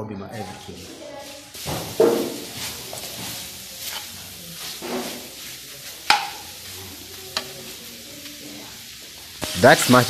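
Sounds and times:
food sizzling in a frying pan: 0.3s - 10.0s
spatula knocking against pan: 6.0s - 6.4s.

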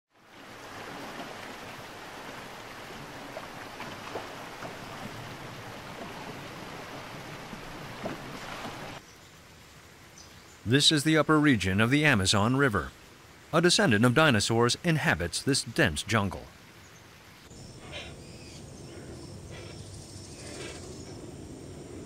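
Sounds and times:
river water rushing and splashing: 0.1s - 17.5s.

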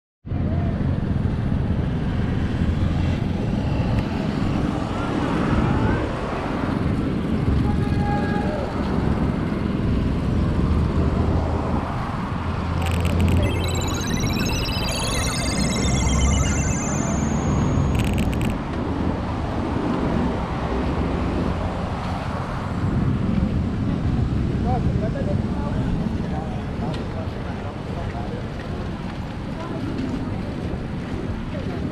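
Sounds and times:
high clicks: 12.8s - 18.6s.

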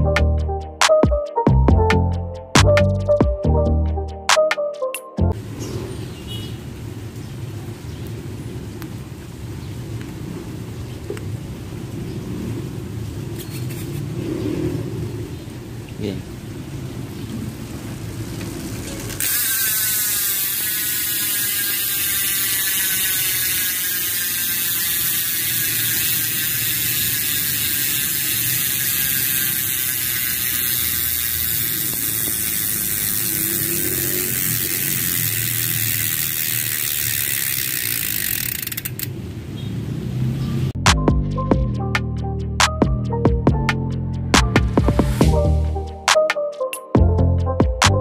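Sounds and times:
bike hub ratcheting click: 18.4s - 39.2s.

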